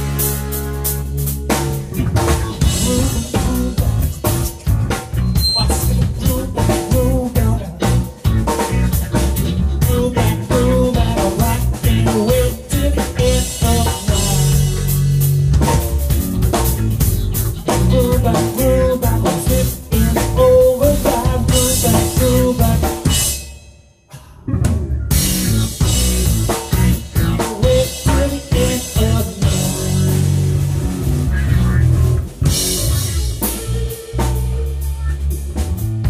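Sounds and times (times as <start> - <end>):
rock band playing live: 0.0 - 36.0
snare and bass drum beat: 1.4 - 23.3, 25.1 - 30.6.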